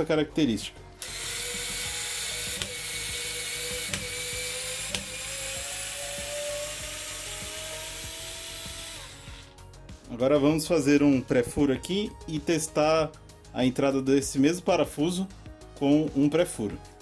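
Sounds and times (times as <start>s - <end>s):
screwdriver sharp clicks: 1.0s - 5.5s
cordless screwdriver motor whine: 1.0s - 9.6s.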